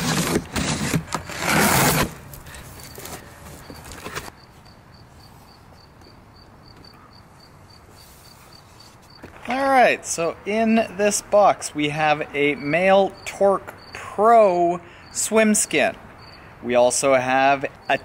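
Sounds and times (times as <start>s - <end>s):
knife slicing packing tape: 0.0s - 3.2s
cardboard rustling: 0.0s - 4.3s.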